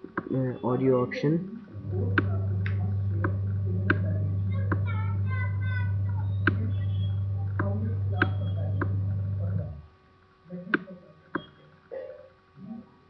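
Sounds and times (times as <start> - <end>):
low steady hum: 0.0 - 13.0
computer mouse clicking: 6.4 - 6.7.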